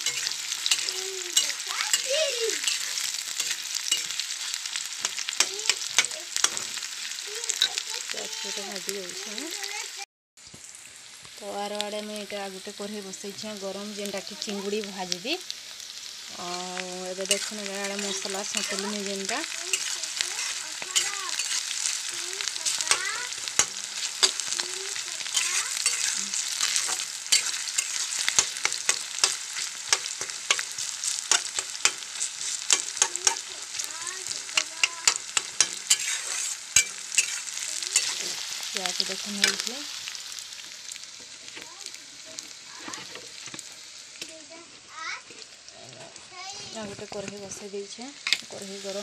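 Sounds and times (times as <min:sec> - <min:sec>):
spatula scraping a pan: 0:00.0 - 0:06.9, 0:17.1 - 0:40.1, 0:42.3 - 0:43.7
onions sizzling in oil: 0:00.0 - 0:49.0.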